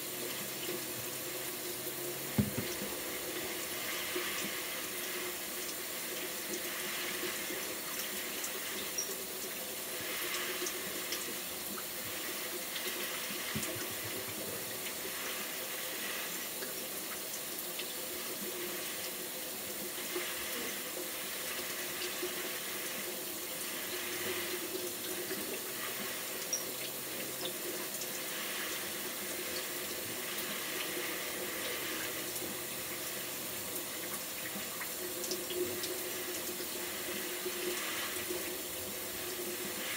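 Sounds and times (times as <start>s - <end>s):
water running from a tap: 0.0s - 39.9s.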